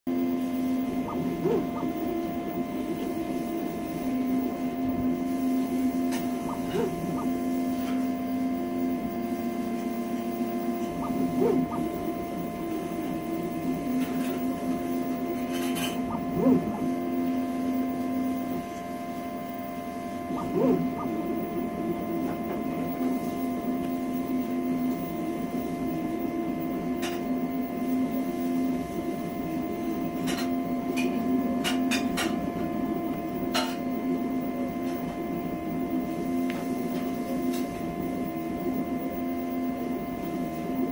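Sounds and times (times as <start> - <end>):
steady hum: 0.1 - 40.9
stepper motors whining: 0.6 - 31.7.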